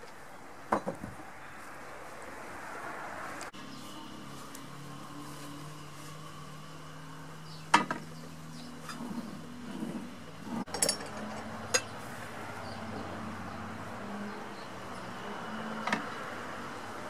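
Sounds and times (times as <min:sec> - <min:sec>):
metal plate clinking on steel rail: 0:10.7 - 0:11.9.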